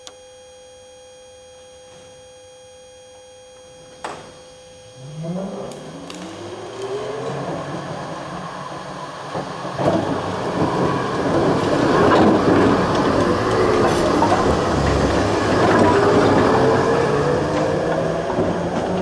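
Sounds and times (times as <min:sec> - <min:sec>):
tram motors whining: 0:03.6 - 0:19.0
steel wheels rumbling on track: 0:05.0 - 0:19.0
clicks over rail joints: 0:05.7 - 0:19.0.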